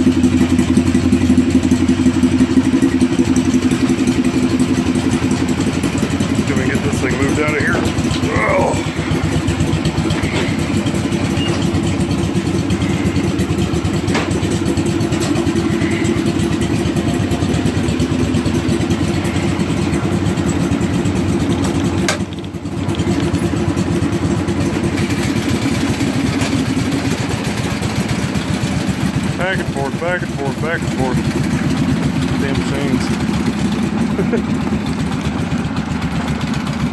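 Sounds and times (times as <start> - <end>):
garden tractor engine running: 0.0 - 36.9.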